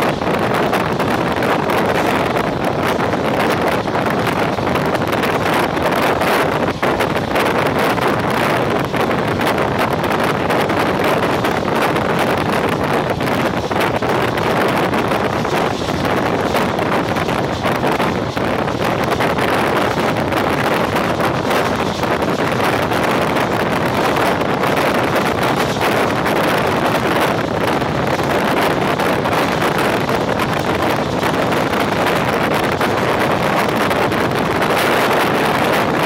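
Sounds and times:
train running on track: 0.0s - 36.0s
wind buffeting microphone: 0.0s - 36.0s.

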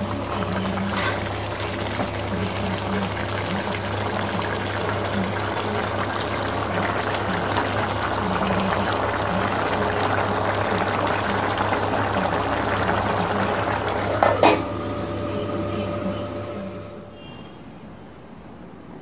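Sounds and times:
food bubbling in a pot: 0.0s - 15.9s
steel lid clanking onto pot: 14.1s - 14.7s.

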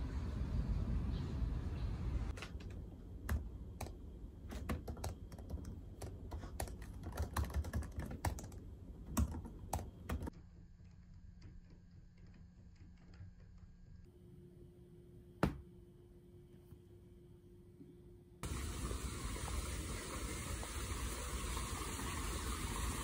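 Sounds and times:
low outdoor rumble: 0.0s - 14.1s
keyboard key clicks: 2.4s - 10.3s.

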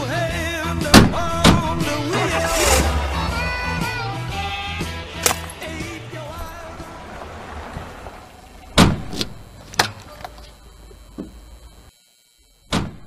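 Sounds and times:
car engine running: 1.1s - 11.9s
car doors slamming: 2.4s - 10.0s.

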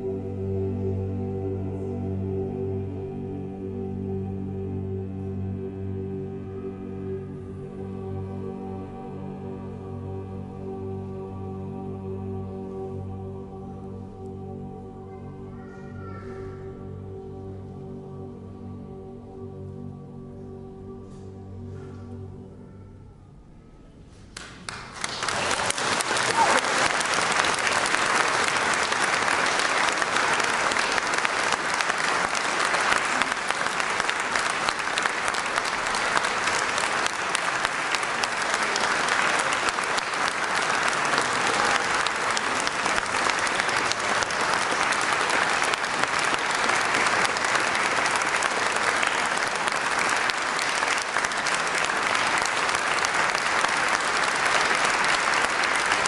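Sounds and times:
audience applause: 24.4s - 56.0s.

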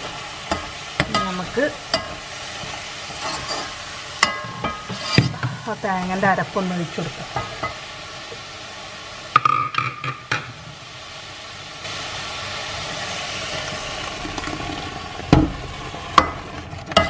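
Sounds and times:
masala sizzling in a pot: 0.0s - 17.0s
steel ladle clinking against pot: 3.3s - 5.6s.

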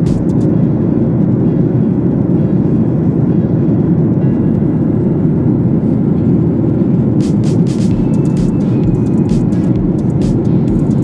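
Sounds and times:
airliner engines droning: 0.0s - 11.0s
air rushing past fuselage: 6.7s - 11.0s.

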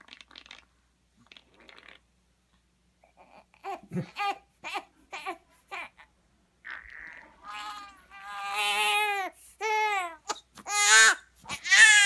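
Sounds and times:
baby crying: 3.1s - 12.0s.

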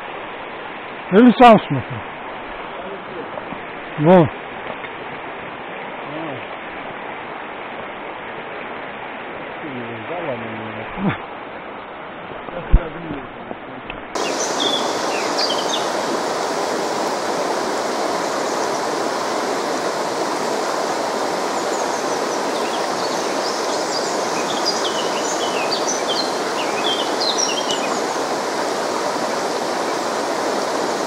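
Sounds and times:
river rushing over stones: 0.0s - 12.6s, 14.1s - 31.0s
small birds chirping: 14.2s - 31.0s.

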